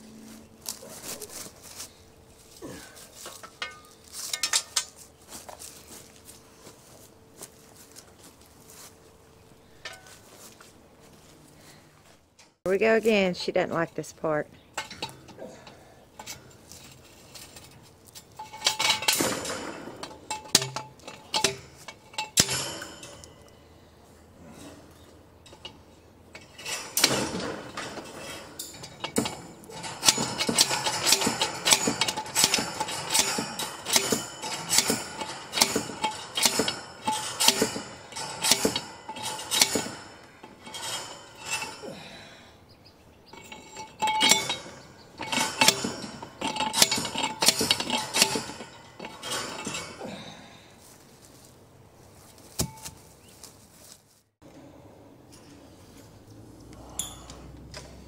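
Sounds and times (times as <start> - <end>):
metal clinking and rattling: 2.7 - 6.3, 13.7 - 23.6, 24.5 - 42.2, 43.2 - 50.4, 56.9 - 58.0.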